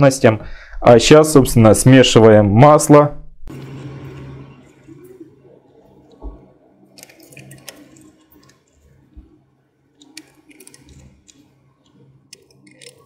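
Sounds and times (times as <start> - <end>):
liquid pouring and sloshing: 6.0 - 9.3.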